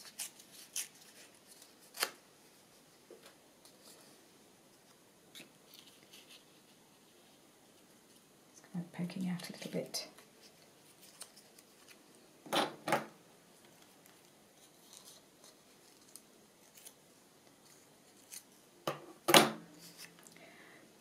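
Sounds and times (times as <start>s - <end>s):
scissors cutting paper: 0.0s - 1.3s.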